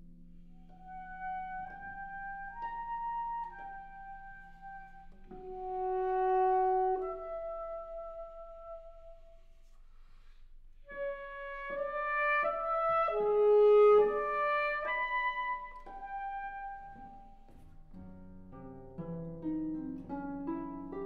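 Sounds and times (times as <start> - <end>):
saxophone melody: 0.7 - 9.3, 10.9 - 17.6.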